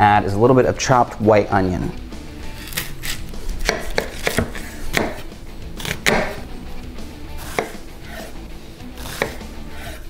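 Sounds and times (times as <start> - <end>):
knife chopping on wooden board: 2.6 - 6.5, 7.4 - 8.4, 9.0 - 10.0.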